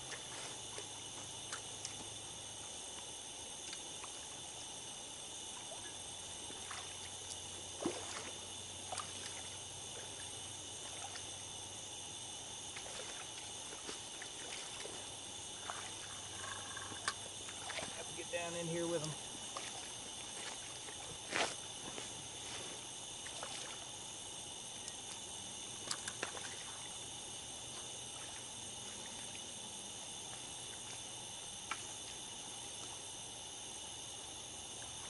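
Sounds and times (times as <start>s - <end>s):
night insects chorus: 0.0s - 35.0s
water splashes: 6.5s - 7.2s, 7.8s - 11.4s, 12.7s - 21.1s, 23.2s - 23.9s, 25.8s - 27.0s.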